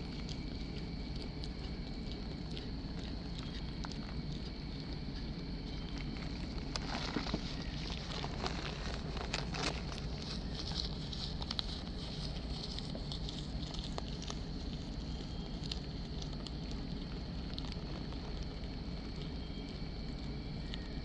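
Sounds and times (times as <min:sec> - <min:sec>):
low hum: 0:00.0 - 0:21.0
rabbit chewing leaves: 0:00.0 - 0:21.0.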